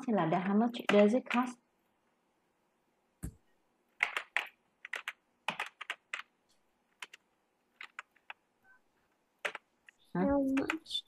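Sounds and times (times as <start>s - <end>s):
keyboard typing clicks: 4.0s - 6.3s, 7.8s - 8.4s, 9.4s - 11.0s.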